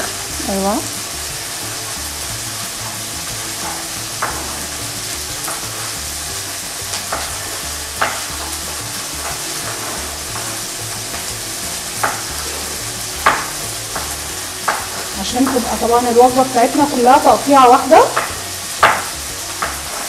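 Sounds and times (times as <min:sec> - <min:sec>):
chicken sizzling in frying pan: 0:00.0 - 0:20.0
knife chopping on wooden board: 0:07.0 - 0:11.3, 0:11.9 - 0:15.8, 0:18.1 - 0:20.0.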